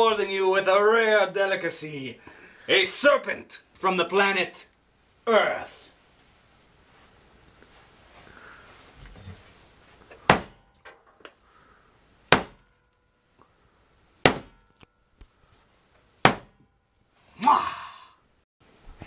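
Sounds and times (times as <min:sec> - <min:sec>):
cleaver chopping on wooden board: 0:12.3 - 0:12.6, 0:14.2 - 0:14.6, 0:16.2 - 0:16.6.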